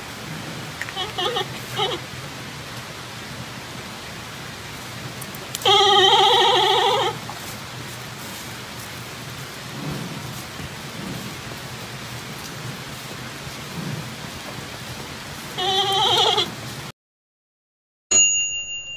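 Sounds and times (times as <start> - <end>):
background hiss: 0.0 - 16.9
panda bleating: 0.9 - 2.0, 5.6 - 7.2, 15.6 - 16.5.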